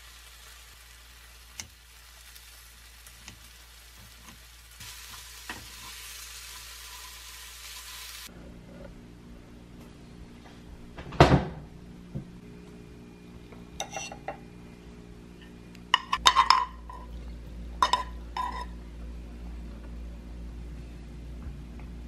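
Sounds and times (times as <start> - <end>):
low steady hum: 8.1 - 22.0
dishes knocking and clinking: 15.9 - 17.2, 17.8 - 18.7.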